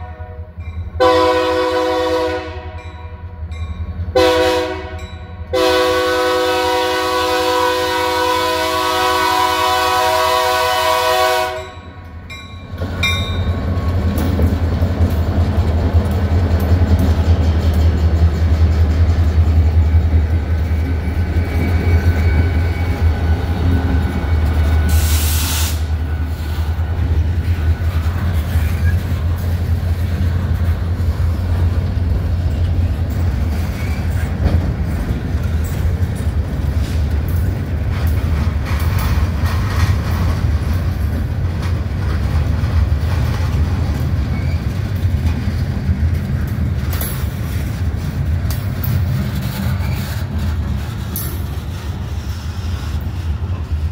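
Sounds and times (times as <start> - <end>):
train horn: 0.0 - 3.4, 4.1 - 11.9
locomotive engine rumble: 6.5 - 53.9
train wheels clattering on rails: 11.6 - 53.9
loud hiss: 24.9 - 26.0.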